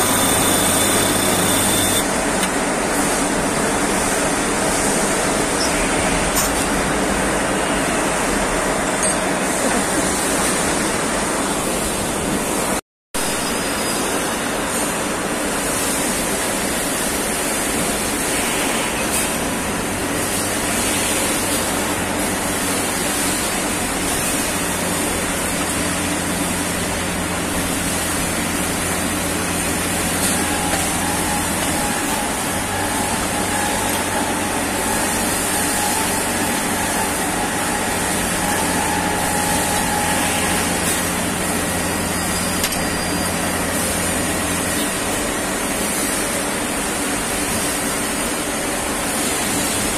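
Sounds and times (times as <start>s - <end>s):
faint higher whine: 0.0s - 2.0s
machine spindle hum: 0.0s - 12.6s, 19.7s - 48.2s.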